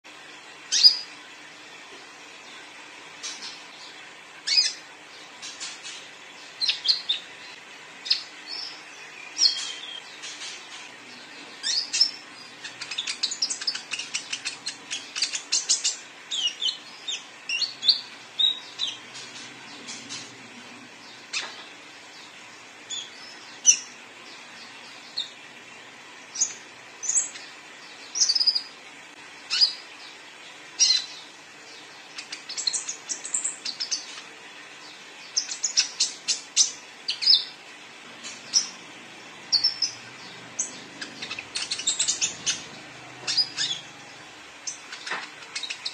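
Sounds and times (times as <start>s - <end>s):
bird chirping and trilling: 0.7s - 1.2s, 2.4s - 28.8s, 29.4s - 45.9s.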